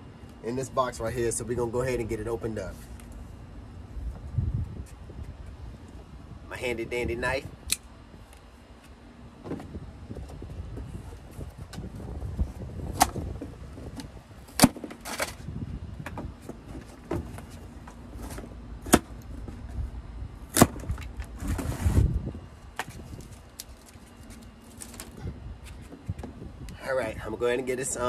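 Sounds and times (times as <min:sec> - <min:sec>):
wind rumble on microphone: 0:03.8 - 0:08.3, 0:09.4 - 0:14.6, 0:15.2 - 0:17.6, 0:19.2 - 0:23.9, 0:25.0 - 0:28.0
cardboard scraping and rustling: 0:20.7 - 0:22.2.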